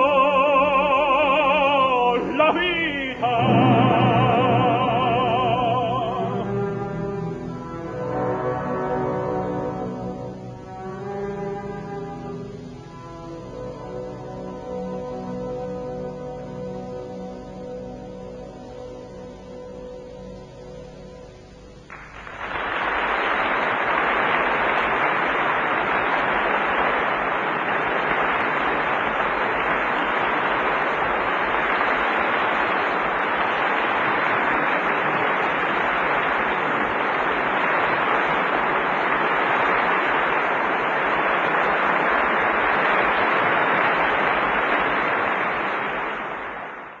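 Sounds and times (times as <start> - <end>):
audience applause: 0.0 - 7.0, 21.8 - 47.0.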